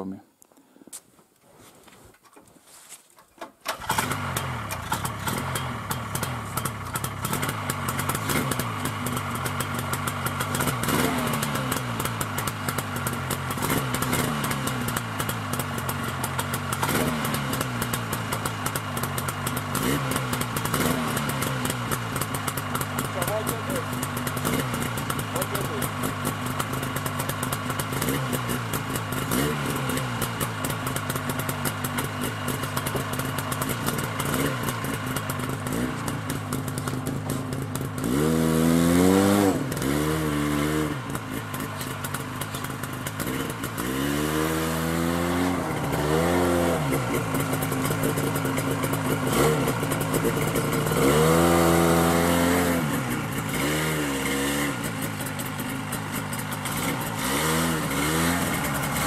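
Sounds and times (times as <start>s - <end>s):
snowmobile engine idling and revving: 3.8s - 59.0s.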